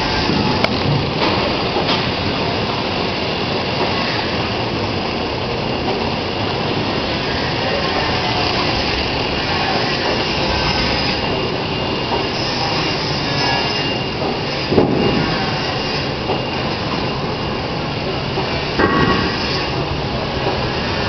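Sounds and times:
machine clatter and hum: 0.0 - 21.0
loud knock: 18.8 - 19.5.

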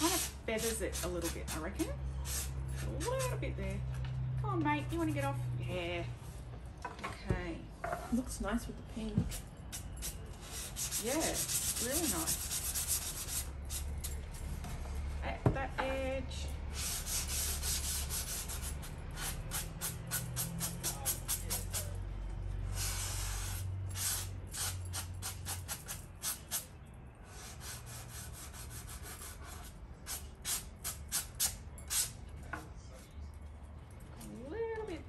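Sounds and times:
sandpaper rubbing on paper edge: 0.0 - 1.6, 9.8 - 13.9, 16.7 - 22.0, 27.4 - 32.1.

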